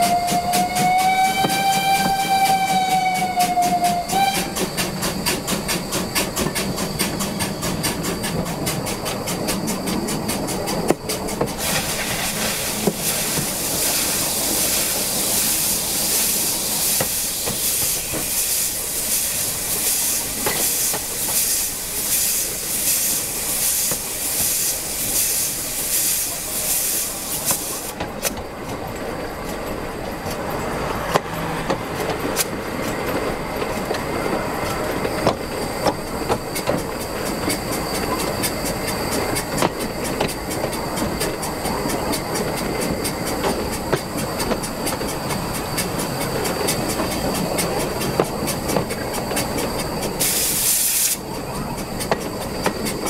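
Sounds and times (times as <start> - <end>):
hiss of steam: 0.0 - 28.4, 30.8 - 53.0
steam locomotive exhaust beats: 0.0 - 53.0
wheels running on rails: 0.0 - 53.0
clicks at rail joints: 0.3 - 13.6, 27.4 - 53.0.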